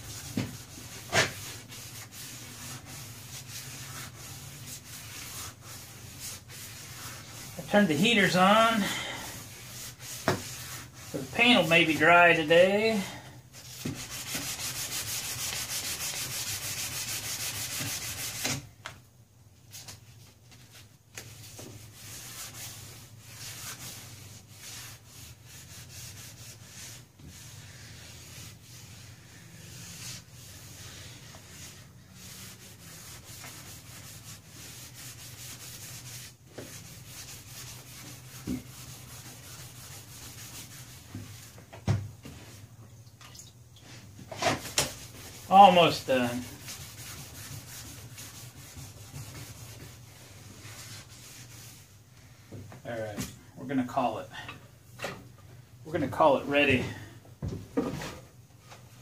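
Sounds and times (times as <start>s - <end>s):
sanding block scrubbing: 0.0s - 8.8s, 9.4s - 13.0s, 13.7s - 18.6s, 21.8s - 41.5s, 45.0s - 51.9s.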